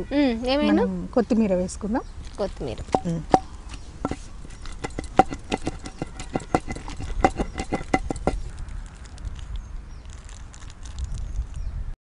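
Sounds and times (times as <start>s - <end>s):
pestle pounding in stone mortar: 2.8s - 8.6s.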